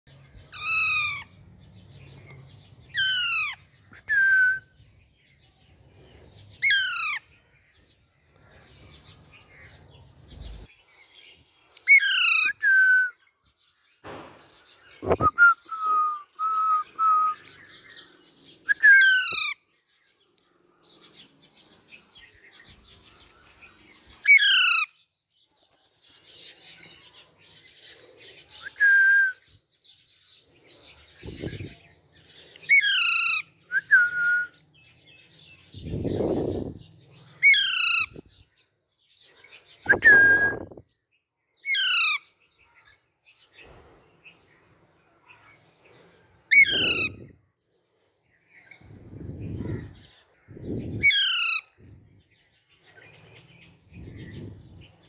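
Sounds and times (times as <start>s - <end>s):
short whistled notes: 39.9s - 40.8s.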